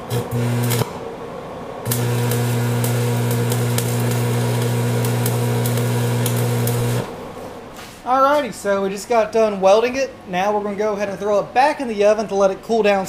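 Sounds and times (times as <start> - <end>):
arc welder buzzing and crackling: 0.0 - 1.1, 1.8 - 7.5.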